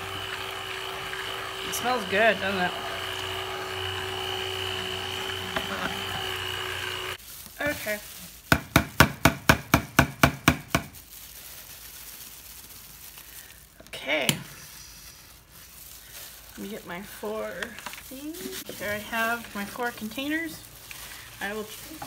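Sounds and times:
stick blender running: 0.0s - 7.2s.

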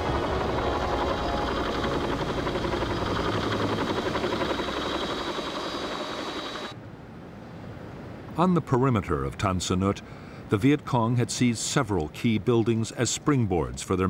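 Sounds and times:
helicopter rotor blades beating: 0.0s - 6.8s
turbine whine: 0.0s - 6.8s.

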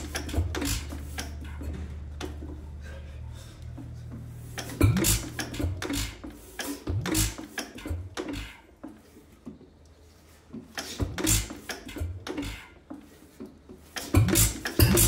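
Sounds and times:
stationary engine thuds and puffs: 0.0s - 9.0s, 10.6s - 12.7s, 13.9s - 15.0s.

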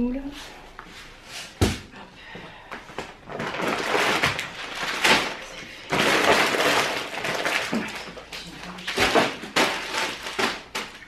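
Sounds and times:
shopping bags rustling: 3.0s - 11.0s.

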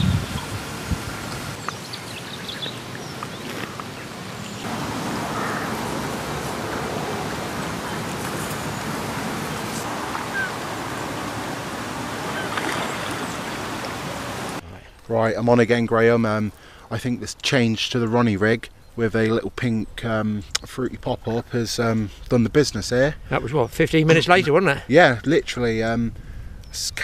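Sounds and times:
bird calls: 0.0s - 14.6s.

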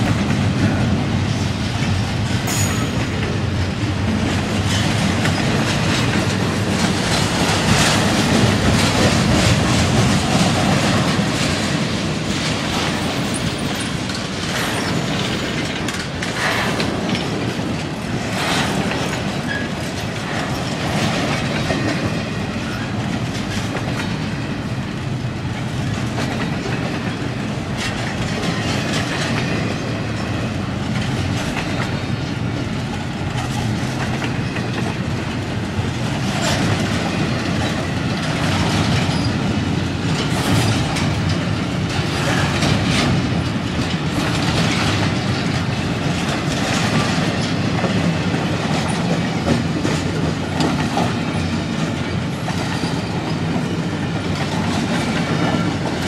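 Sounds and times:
clickety-clack over rail joints: 0.0s - 56.0s
freight train wheels rumbling: 0.0s - 56.0s
sharp metal clanks: 2.5s - 3.4s.

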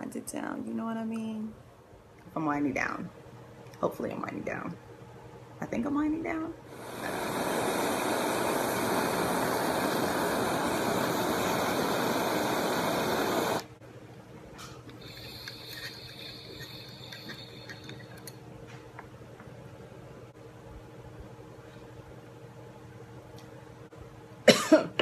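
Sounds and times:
faint airy hiss: 6.6s - 13.8s, 14.6s - 18.9s
butane torch hissing: 6.7s - 13.8s, 15.0s - 18.4s.

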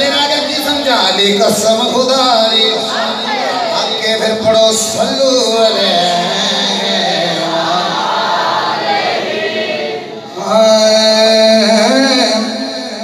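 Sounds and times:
men chanting together: 5.8s - 10.6s.

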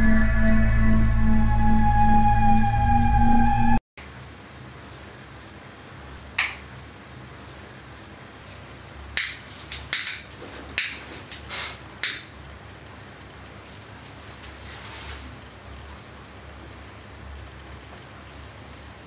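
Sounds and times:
low steady hum: 0.0s - 9.2s.

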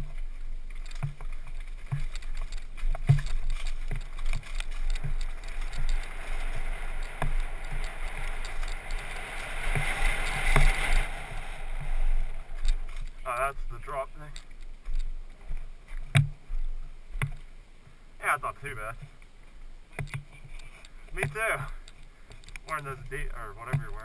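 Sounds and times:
mountain bike clattering over rocks: 0.0s - 15.2s, 20.0s - 24.0s
rushing wind and tyres: 0.0s - 24.0s.

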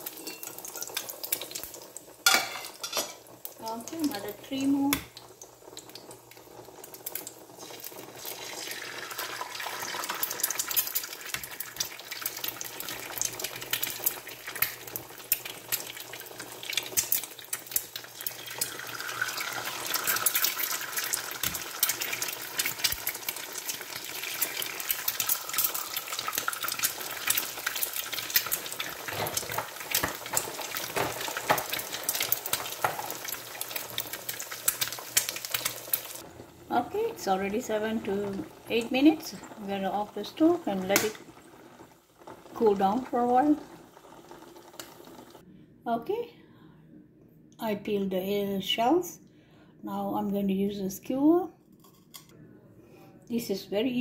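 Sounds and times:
oil crackling and popping: 0.0s - 36.2s, 38.2s - 45.4s
eggs sizzling in hot oil: 0.0s - 45.4s.

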